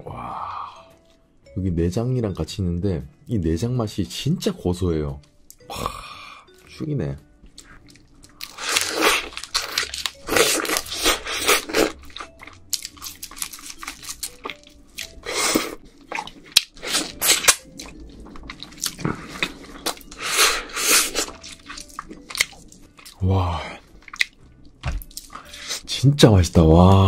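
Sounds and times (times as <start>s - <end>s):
close chewing and biting: 7.5s - 25.8s.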